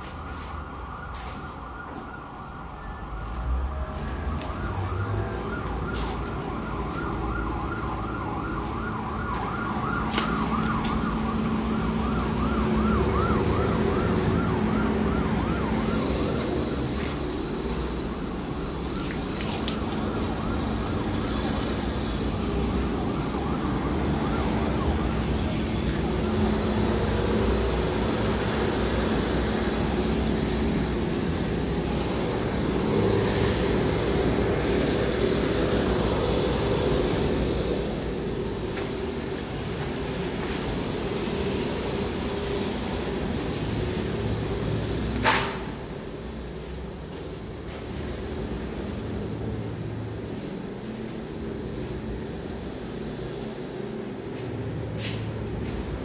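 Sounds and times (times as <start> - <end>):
siren yelping: 0.0 - 28.7
road traffic rumble: 0.0 - 56.0.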